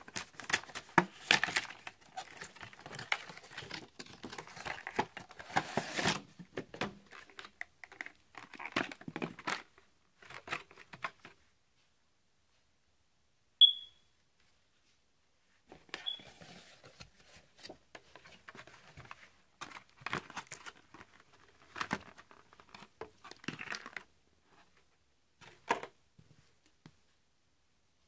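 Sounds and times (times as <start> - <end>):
packaging crinkling and rustling: 0.0 - 11.4, 16.1 - 24.1
short high-pitched ping: 13.6 - 14.0.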